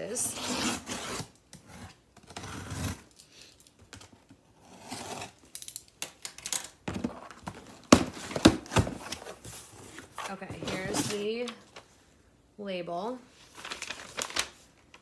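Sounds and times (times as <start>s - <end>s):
cardboard and tape rustling: 6.2s - 12.0s, 13.4s - 15.0s.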